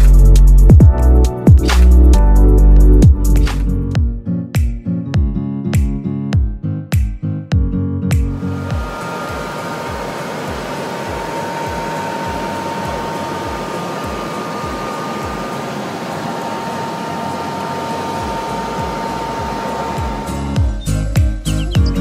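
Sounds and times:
helicopter cabin engine and rotor: 8.4s - 21.8s.

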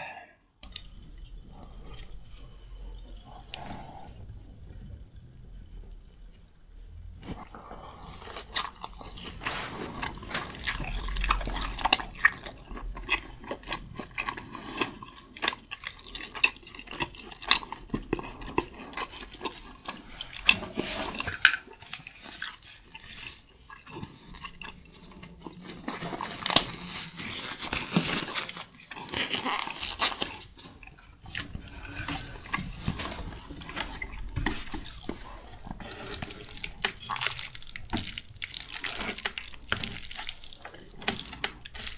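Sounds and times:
wet chewing and lip-smacking: 7.2s - 26.7s, 28.7s - 41.9s.

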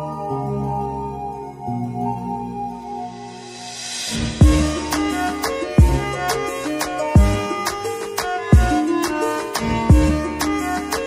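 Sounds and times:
melodic tones over a beat: 0.0s - 11.0s
sharp percussion hits: 3.4s - 7.8s
deep kick drum: 4.3s - 4.9s, 5.8s - 6.1s, 7.2s - 7.5s, 8.6s - 8.8s, 9.9s - 10.2s.

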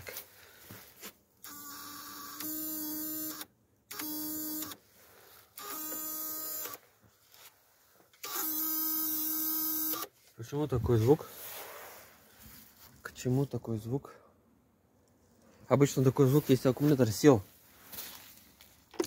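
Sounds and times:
truck starter electrical buzz: 1.4s - 4.8s, 5.5s - 6.9s, 8.2s - 10.1s.

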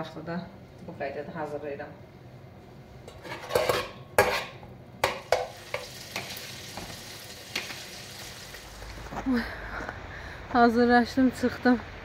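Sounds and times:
utensil knocking in metal pot: 5.0s - 6.9s
food sizzling: 5.0s - 9.2s.

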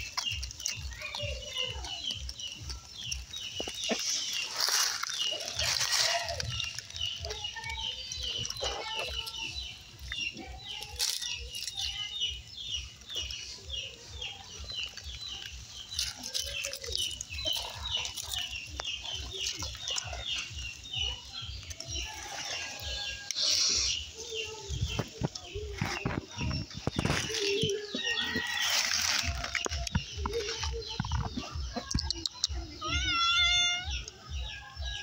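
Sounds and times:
bird clucking calls: 0.0s - 11.2s
bird chirping: 0.0s - 35.0s.

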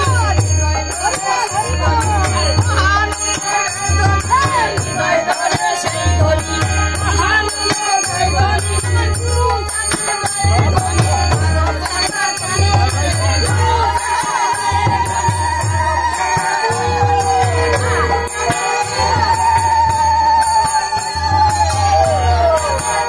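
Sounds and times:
group singing: 0.0s - 23.0s
harmonium: 0.0s - 23.0s
ringing hand cymbals: 0.0s - 23.0s.

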